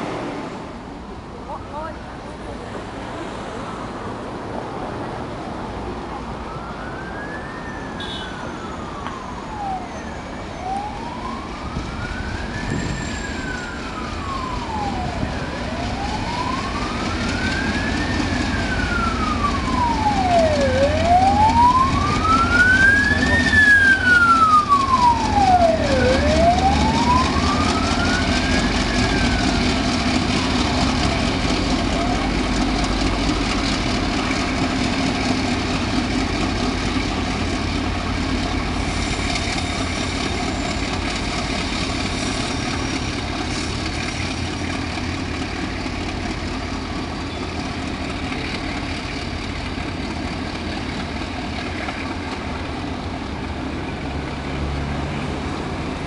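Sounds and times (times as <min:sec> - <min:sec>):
diesel locomotive engine rumble: 0:00.0 - 0:56.0
siren wailing: 0:06.3 - 0:36.6.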